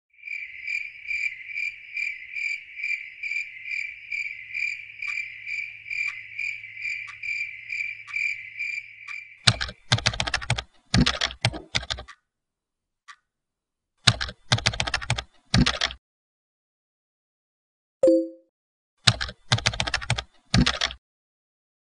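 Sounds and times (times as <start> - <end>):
cricket chirping: 0.2 - 10.6
rapid sharp clicking: 9.4 - 12.2, 14.0 - 16.0, 19.0 - 21.0.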